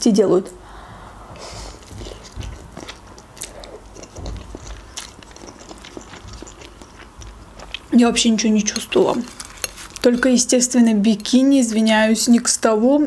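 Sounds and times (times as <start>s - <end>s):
person chewing and slurping noodles: 1.4s - 8.0s.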